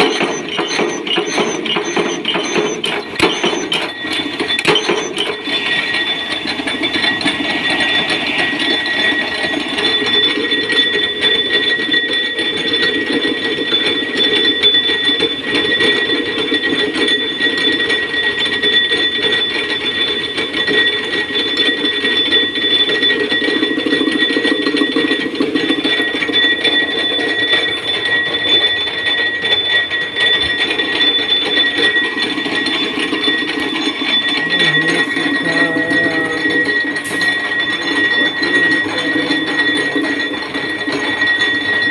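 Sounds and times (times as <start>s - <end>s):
power press stamping: 0.0s - 4.0s, 4.6s - 5.4s
steady high whine: 0.0s - 12.1s, 27.1s - 41.9s.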